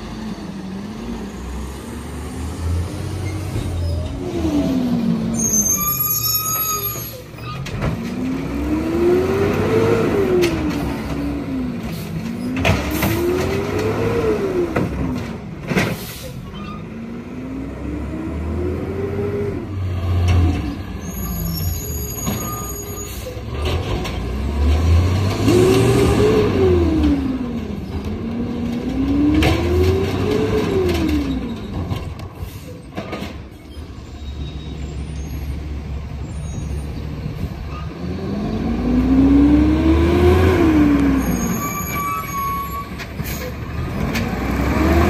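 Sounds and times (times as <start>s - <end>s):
brake squeals: 2.4s - 17.2s, 18.6s - 24.2s, 25.4s - 38.1s, 39.2s - 45.0s
truck engine revving: 7.9s - 15.4s, 23.5s - 31.6s, 36.0s - 42.4s, 43.1s - 45.0s.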